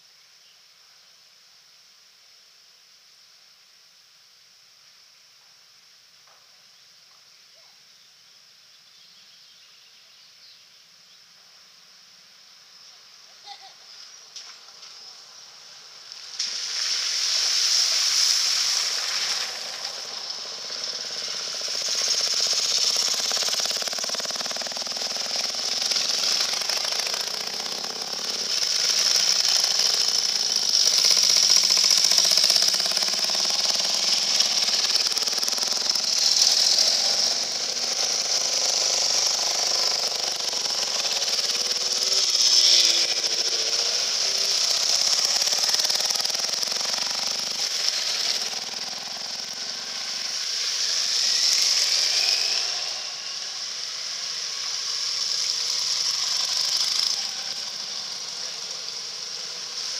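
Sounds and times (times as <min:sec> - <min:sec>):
motorcycle engines passing: 0:14.3 - 0:59.9
water splashing under wheels: 0:16.2 - 0:42.6.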